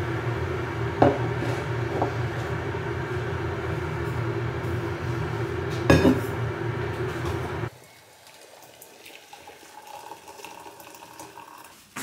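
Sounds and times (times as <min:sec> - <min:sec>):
electric kettle heating water: 0:00.0 - 0:12.0.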